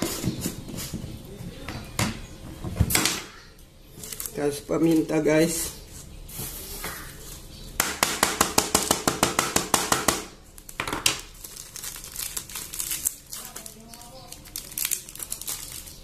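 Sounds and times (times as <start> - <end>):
pepper sachet crinkling: 4.0 - 5.2, 10.5 - 16.0.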